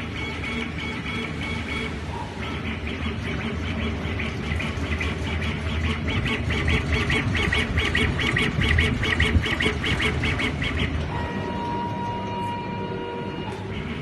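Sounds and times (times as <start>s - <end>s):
steady machine whine: 0.0s - 14.0s.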